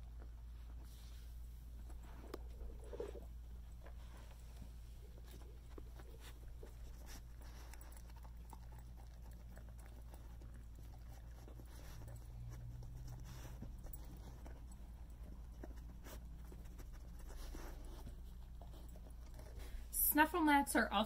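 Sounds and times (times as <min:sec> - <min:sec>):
low steady hum: 0:00.0 - 0:21.0
dog sniffing: 0:00.4 - 0:20.0
rustling of snuffle mat: 0:00.5 - 0:07.8
kibble crunching: 0:01.7 - 0:19.9.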